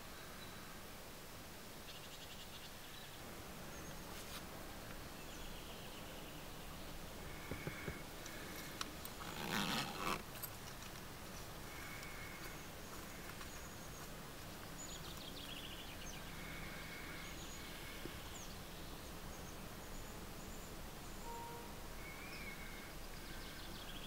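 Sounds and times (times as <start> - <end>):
distant small birds calling: 1.7 - 24.0.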